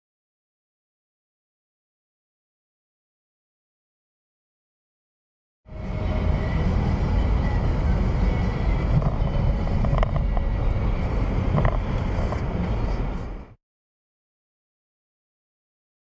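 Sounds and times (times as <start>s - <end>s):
vehicle road and wind noise: 5.7s - 13.6s.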